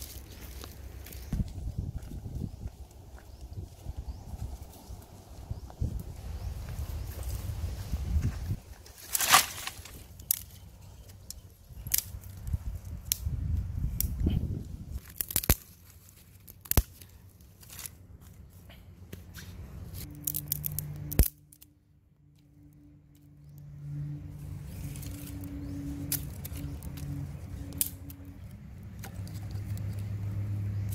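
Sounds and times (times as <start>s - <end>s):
dry sticks snapping and crackling: 0.0s - 3.9s, 8.8s - 14.2s, 14.9s - 18.4s, 19.1s - 23.7s, 24.6s - 30.9s.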